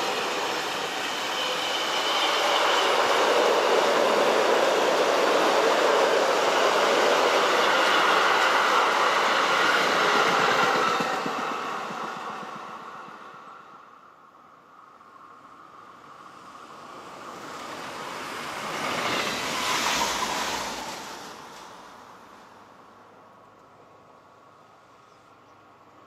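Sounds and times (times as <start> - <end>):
freight train wheel rumble: 0.0 - 13.6.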